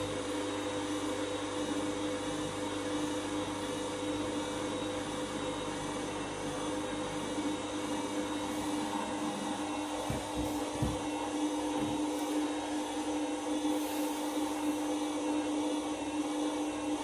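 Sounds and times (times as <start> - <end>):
washing machine motor hum: 0.0 - 17.0
washing machine drum turning laundry: 8.4 - 13.1.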